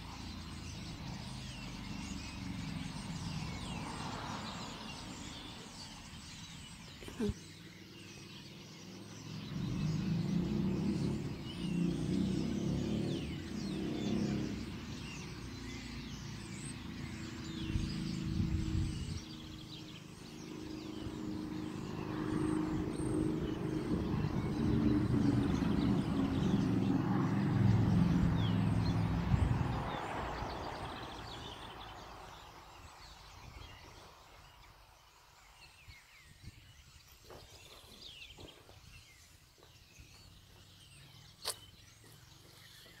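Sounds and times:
flock of birds chirping: 0:00.0 - 0:43.0
vehicle engine rumble: 0:08.4 - 0:35.0
sharp click: 0:41.4 - 0:41.7.

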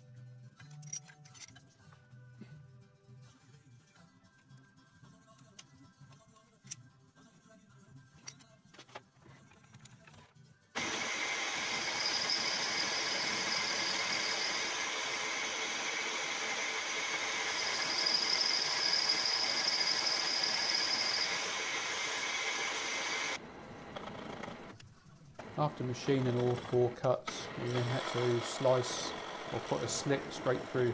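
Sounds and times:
high machining whine: 0:10.8 - 0:23.4, 0:27.4 - 0:30.9
milling machine cutting metal: 0:10.8 - 0:24.7, 0:25.4 - 0:30.9.

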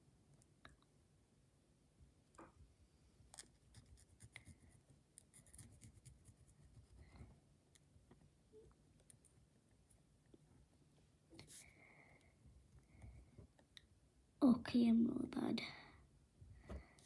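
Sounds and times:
pen scratching on paper: 0:03.5 - 0:07.0.

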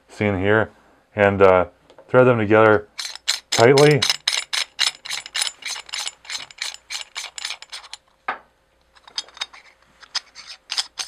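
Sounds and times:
metal threads clicking: 0:03.0 - 0:08.0, 0:08.9 - 0:11.0.

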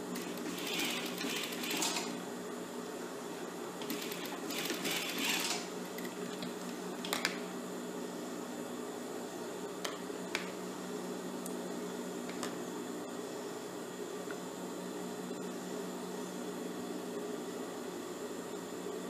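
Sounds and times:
sewing machine motor humming: 0:00.0 - 0:02.2, 0:03.8 - 0:06.5.

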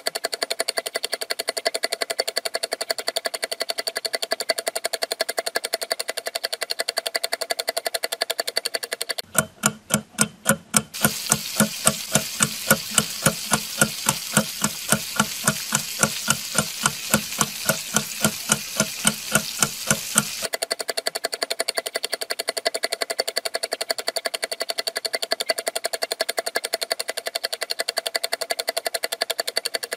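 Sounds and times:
fast ticking beat: 0:09.2 - 0:20.5
hissing layer: 0:11.0 - 0:20.5.

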